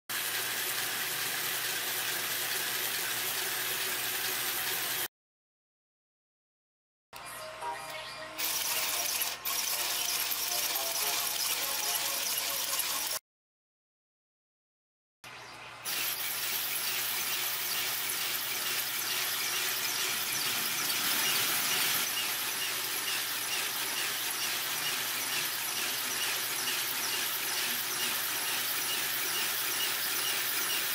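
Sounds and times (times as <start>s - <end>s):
small geared motor whirring: 8.4s - 13.2s, 15.9s - 30.9s.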